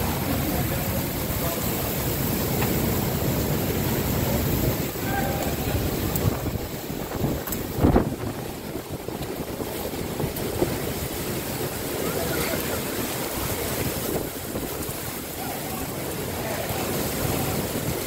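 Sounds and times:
heavy rain: 0:00.0 - 0:18.0
wind: 0:00.0 - 0:18.0.

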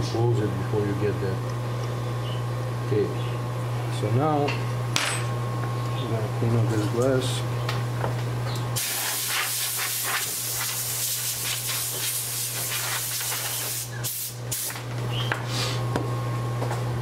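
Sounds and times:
compressed air hissing: 0:08.8 - 0:14.8.

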